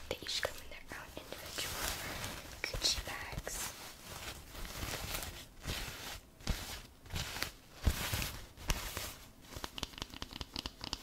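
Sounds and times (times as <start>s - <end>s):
wrapping paper crinkling: 0.2s - 9.8s.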